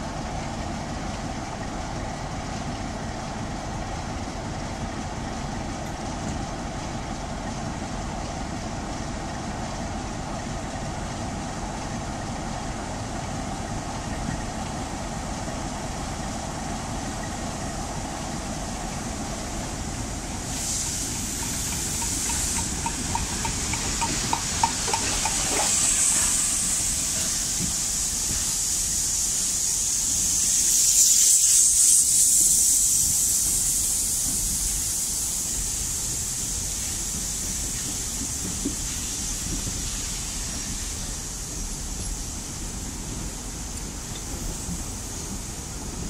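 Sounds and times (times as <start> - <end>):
diesel engine idling hum: 0.0 - 30.4
steam locomotive hissing steam: 0.0 - 46.0
light clicks of train wheels: 0.3 - 46.0.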